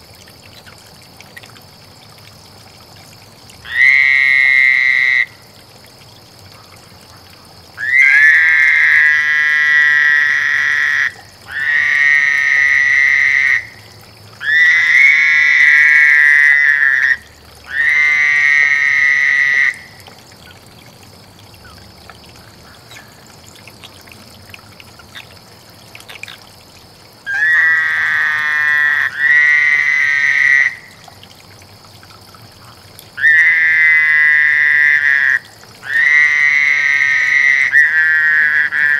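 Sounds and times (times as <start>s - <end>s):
toads trilling: 3.6s - 5.4s, 6.6s - 20.7s, 26.0s - 26.5s, 27.2s - 31.0s, 32.6s - 38.9s.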